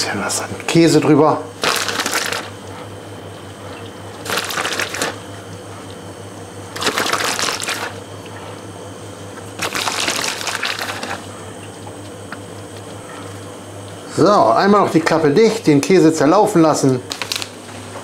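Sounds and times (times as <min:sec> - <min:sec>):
steady low hum: 0:00.0 - 0:18.0
plastic bag crinkling: 0:01.6 - 0:02.5, 0:04.2 - 0:05.2, 0:06.8 - 0:08.0, 0:09.6 - 0:11.2, 0:17.1 - 0:17.6.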